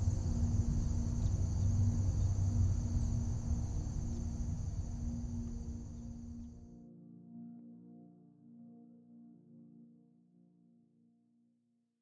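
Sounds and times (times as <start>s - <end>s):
high insect trill: 0.0s - 6.6s
low rumble: 0.0s - 6.6s
faint low hum: 0.0s - 6.7s.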